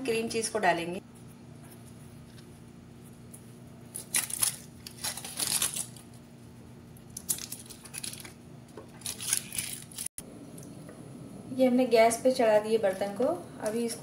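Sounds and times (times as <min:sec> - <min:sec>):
foil wrappers crinkling: 0:03.9 - 0:06.2, 0:07.0 - 0:10.1.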